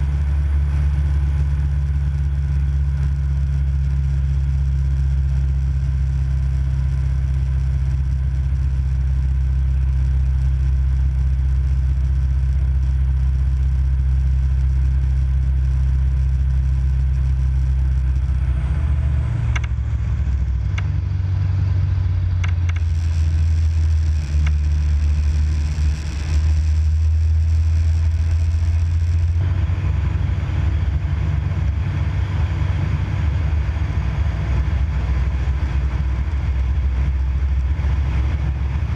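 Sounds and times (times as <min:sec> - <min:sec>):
aircraft engine droning in cockpit: 0:00.0 - 0:38.9
sharp clicks: 0:19.4 - 0:19.8, 0:22.4 - 0:29.4.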